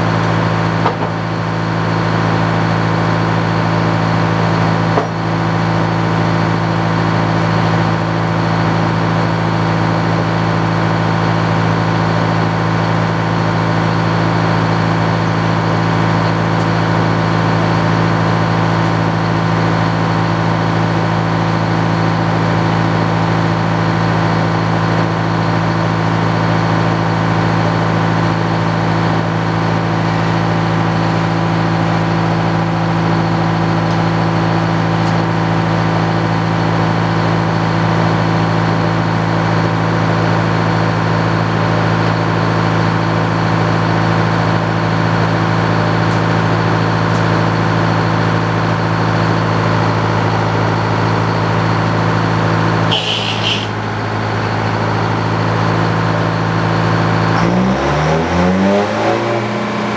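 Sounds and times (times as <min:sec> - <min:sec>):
saw blade spinning drone: 0:52.9 - 0:54.0.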